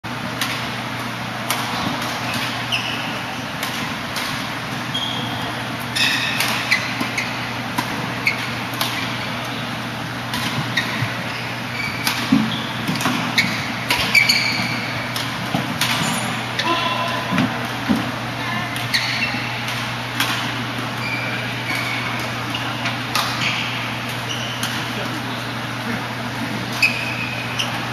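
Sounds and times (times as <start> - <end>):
low hum of hall: 0.1 - 27.9
shoes squeaking on court floor: 1.6 - 17.9, 18.8 - 27.9
rackets striking shuttlecock: 12.0 - 16.6, 23.1 - 24.8.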